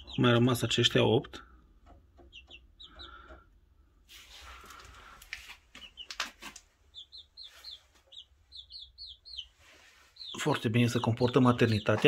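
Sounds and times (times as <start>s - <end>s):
chicks peeping: 0.0s - 12.0s
rustling: 4.1s - 8.2s.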